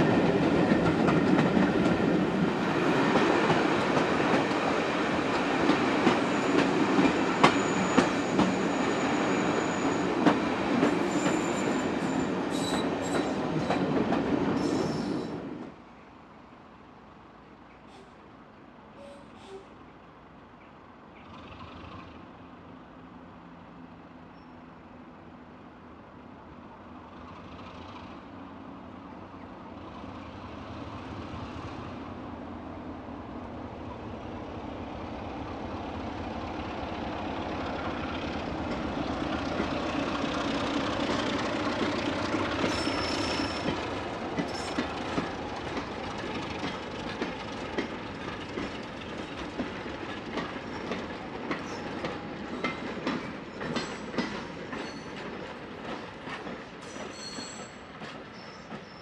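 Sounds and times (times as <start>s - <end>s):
diesel locomotive engine: 0.0s - 59.0s
high-pitched wheel squeals: 7.4s - 10.1s, 11.0s - 13.3s, 42.7s - 43.7s, 56.8s - 59.0s
wheels clattering over rail joints: 40.8s - 59.0s.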